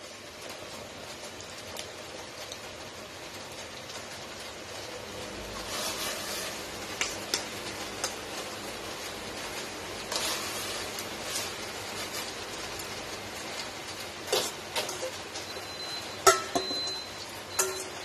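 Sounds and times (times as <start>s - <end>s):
water boiling and bubbling: 0.0s - 18.0s
tongs clicking on metal pot: 7.0s - 8.2s, 16.2s - 18.0s.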